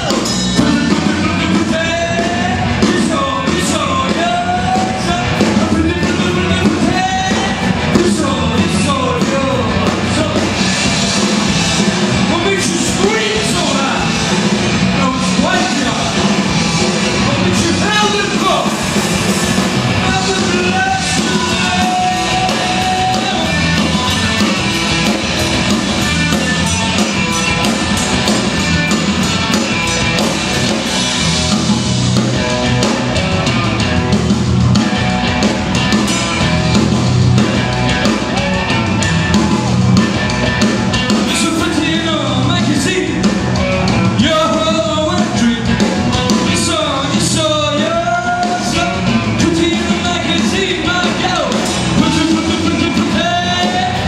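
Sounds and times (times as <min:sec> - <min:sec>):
man singing: 0:00.0 - 0:10.6, 0:20.0 - 0:24.2, 0:41.2 - 0:43.3, 0:44.0 - 0:54.0
rock band playing: 0:00.0 - 0:54.0.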